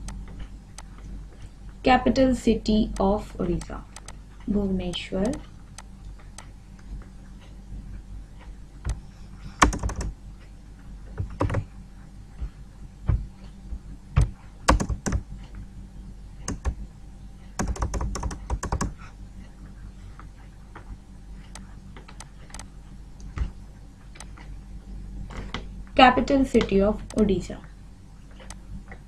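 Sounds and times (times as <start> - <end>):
low electrical hum: 0.0 - 29.0
computer clicks and taps: 3.0 - 4.2, 4.9 - 6.5, 9.6 - 10.1, 11.2 - 11.7, 14.2 - 15.2, 16.5 - 16.8, 17.6 - 19.0, 21.5 - 22.7.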